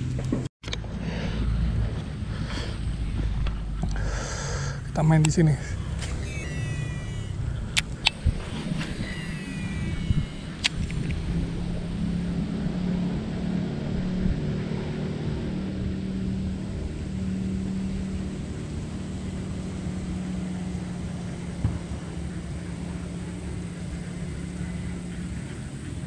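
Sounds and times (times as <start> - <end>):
low uneven rumble: 0.0 - 6.1
distant motor engine drone: 0.0 - 26.0.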